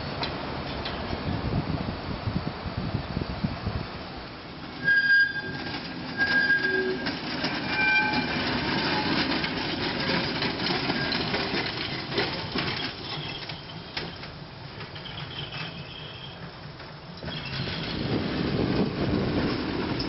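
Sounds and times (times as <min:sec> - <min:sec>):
streetcar rolling on track: 0:00.0 - 0:20.0
wheels clicking over rail joints: 0:00.1 - 0:01.5, 0:04.4 - 0:20.0
streetcar wheels squealing: 0:04.6 - 0:20.0.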